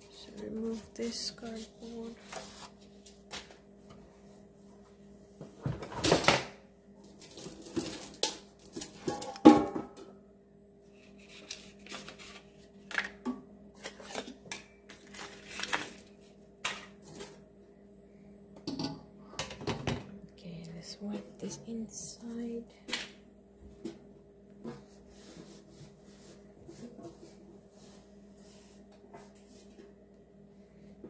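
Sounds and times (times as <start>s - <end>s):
cardboard rustling and tearing: 15.0s - 16.2s.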